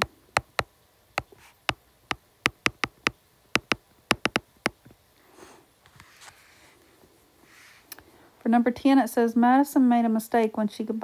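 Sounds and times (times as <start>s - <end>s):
stylus tapping on glass screen: 0.0s - 1.8s, 2.4s - 4.9s
stylus scratching while writing: 1.2s - 1.8s.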